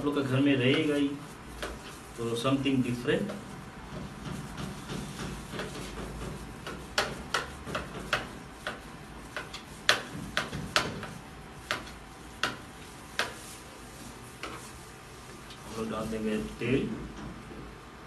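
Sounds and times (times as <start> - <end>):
knife chopping on wooden board: 3.2 - 13.5.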